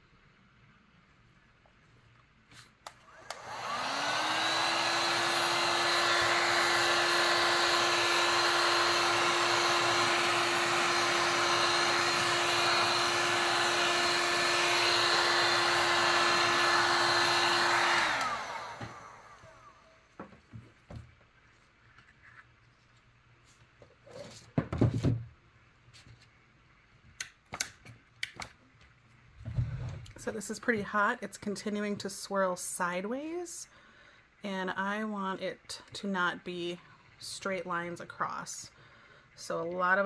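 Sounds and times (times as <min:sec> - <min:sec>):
heat gun fan blowing: 0:02.8 - 0:20.0.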